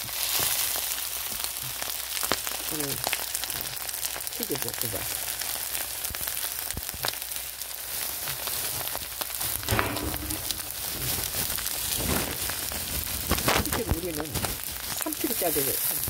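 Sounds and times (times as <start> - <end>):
rice sizzling in a pan: 0.0 - 16.0
metal spoon scraping pan: 9.5 - 11.2.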